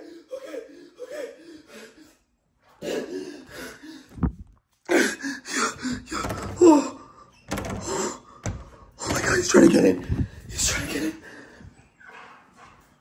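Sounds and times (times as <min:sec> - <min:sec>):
interior door thudding: 0:05.8 - 0:10.5.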